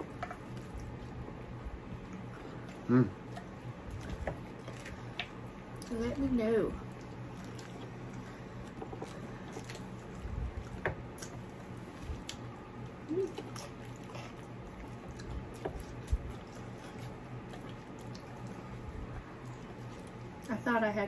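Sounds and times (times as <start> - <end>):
low steady hum: 0.0 - 21.0
chewing and mouth noises: 6.8 - 20.6.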